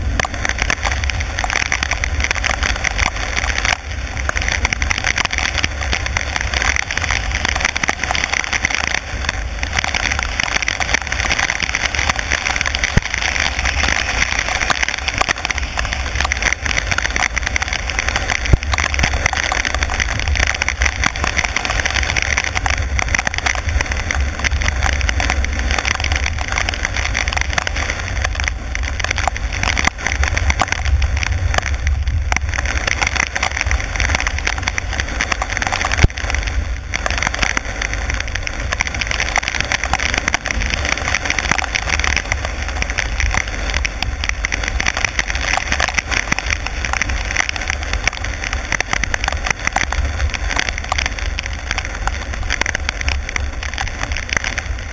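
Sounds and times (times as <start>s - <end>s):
heavy rain: 0.0s - 54.9s
raindrops ticking: 0.0s - 54.9s
tyres hissing on wet road: 0.0s - 54.9s.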